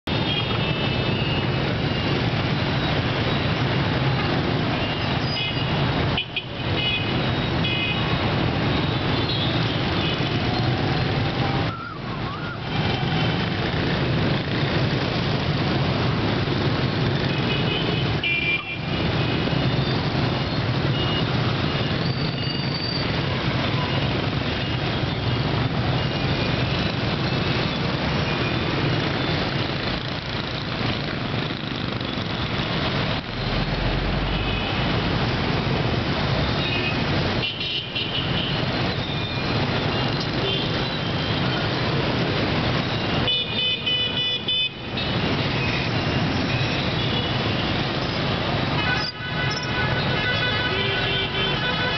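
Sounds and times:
motorbikes and scooters passing: 0:00.1 - 0:22.0, 0:23.0 - 0:37.4.

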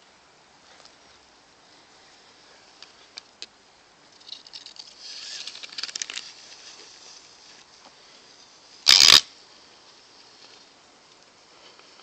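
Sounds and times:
rustling through dry grass: 0:00.0 - 0:12.0.

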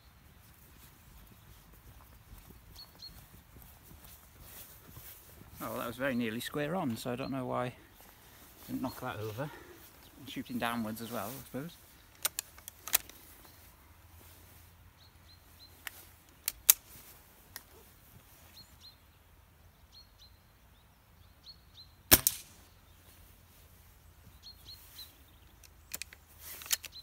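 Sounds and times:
sharp clicks: 0:12.1 - 0:13.3, 0:15.8 - 0:16.9, 0:25.6 - 0:27.0
air rifle shot: 0:22.1 - 0:22.6.

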